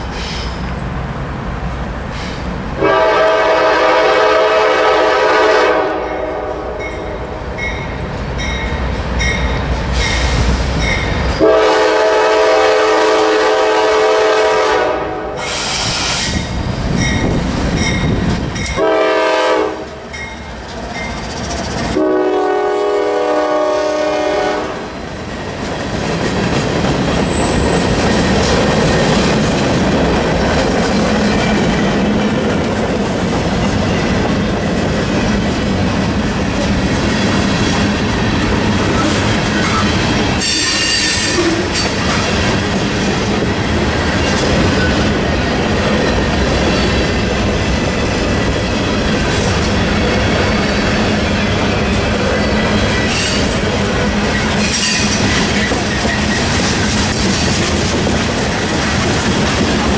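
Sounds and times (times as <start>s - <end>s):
diesel locomotive rumbling: 0.0s - 59.9s
train horn blasts: 2.8s - 7.3s, 11.4s - 16.4s, 18.7s - 20.0s, 22.0s - 25.0s, 40.3s - 42.0s.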